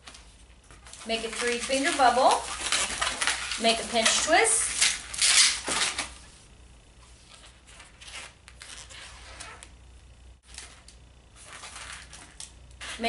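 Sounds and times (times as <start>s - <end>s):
low steady hum: 0.0s - 13.0s
balloon rubbing: 7.2s - 9.7s, 11.4s - 13.0s.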